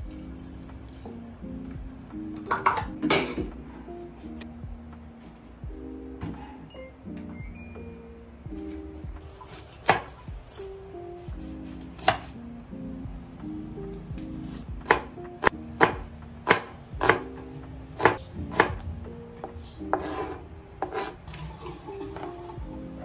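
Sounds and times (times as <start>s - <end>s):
knife striking cutting board: 9.5s - 10.6s, 11.6s - 12.3s, 14.8s - 17.3s, 19.9s - 21.2s.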